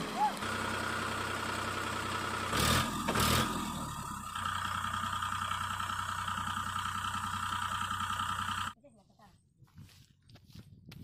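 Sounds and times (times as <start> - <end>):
tractor diesel engine running: 0.0 - 8.8.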